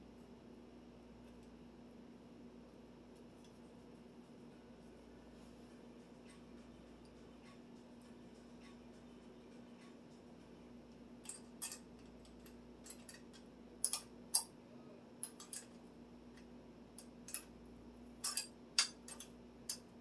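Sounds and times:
faint steady hum: 0:00.0 - 0:20.0
sharp clicks and taps of tools: 0:11.2 - 0:14.5, 0:15.2 - 0:15.8, 0:18.2 - 0:19.9.

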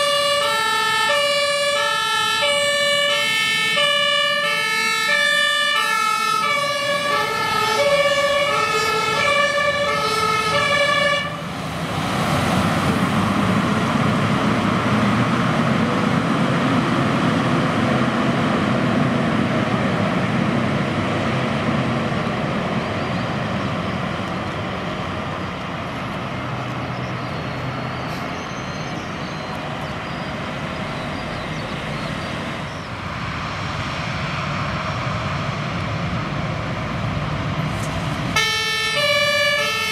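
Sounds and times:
two-tone fire siren: 0:00.0 - 0:11.5, 0:38.3 - 0:39.9
truck engines running: 0:00.0 - 0:39.9
tyres on wet tarmac: 0:00.0 - 0:39.9.

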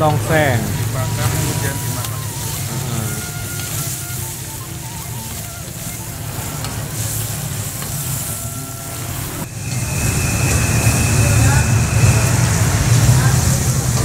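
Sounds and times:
meat sizzling in hot oil: 0:00.0 - 0:14.0
steady high tone: 0:00.0 - 0:14.0
metal spatula scraping wok: 0:00.6 - 0:14.0
low rumble: 0:06.0 - 0:14.0.

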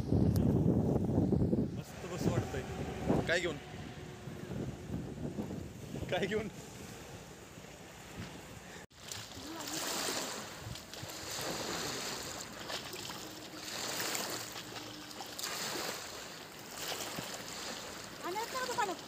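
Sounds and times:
small waves lapping on shore: 0:06.6 - 0:19.0.

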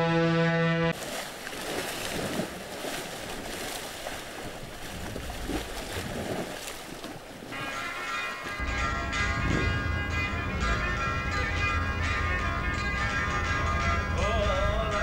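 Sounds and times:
ferry horn blast: 0:00.0 - 0:01.0, 0:07.5 - 0:14.2
sea water splashing: 0:00.9 - 0:10.2.

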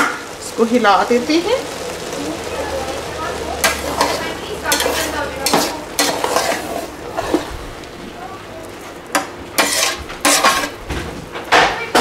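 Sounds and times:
spatula scraping rice in metal pot: 0:03.6 - 0:07.5, 0:09.1 - 0:10.8.

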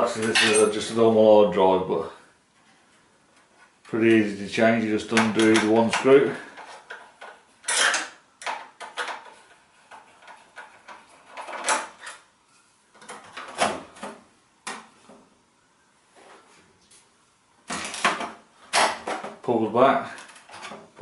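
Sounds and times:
clicks and knocks of parts handled: 0:05.1 - 0:12.3, 0:20.1 - 0:21.0.

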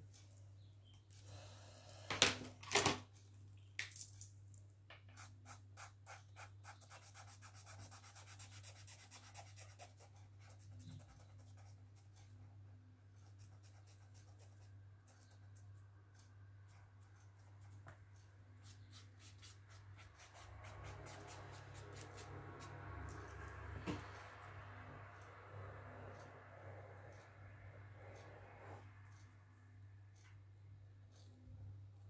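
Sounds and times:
steady low hum: 0:04.6 - 0:32.0
marker scratching on paper: 0:05.1 - 0:12.4, 0:13.2 - 0:15.6, 0:18.6 - 0:23.6.

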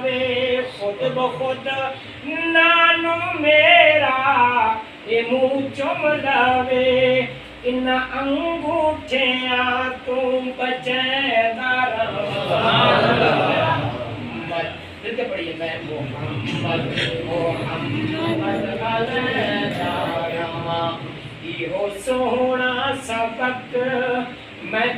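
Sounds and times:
person chanting: 0:16.4 - 0:21.0.

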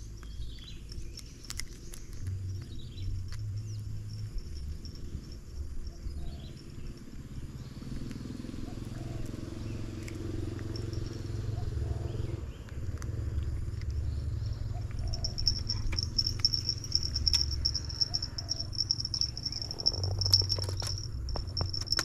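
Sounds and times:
sharp clicks and rustles: 0:00.0 - 0:05.8, 0:14.8 - 0:22.0
insect pulsing trill: 0:02.4 - 0:12.5, 0:14.0 - 0:22.0.

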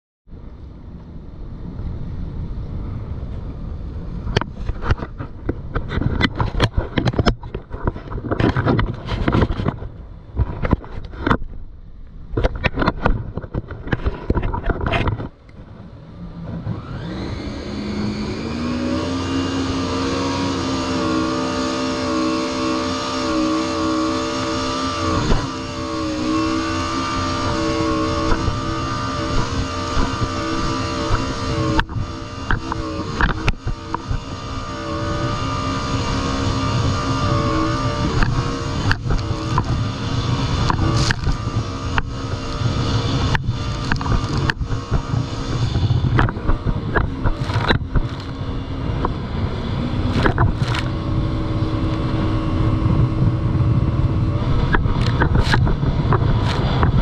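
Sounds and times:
jet ski engine: 0:00.3 - 0:57.0
wind gusts: 0:00.3 - 0:57.0.

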